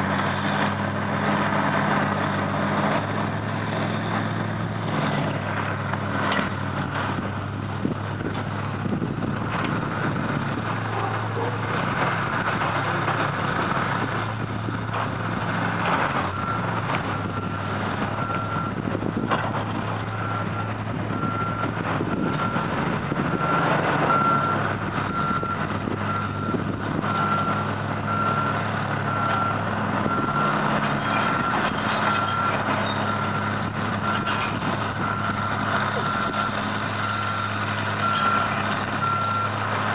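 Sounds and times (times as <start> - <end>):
excavator diesel engines running: 0.0 - 39.9.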